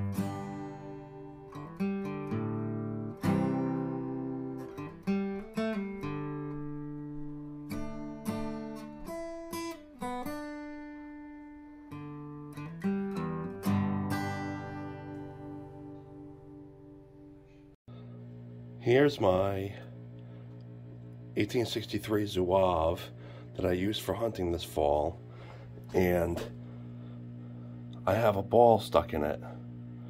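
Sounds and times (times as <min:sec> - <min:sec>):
acoustic guitar music: 0:00.0 - 0:17.7.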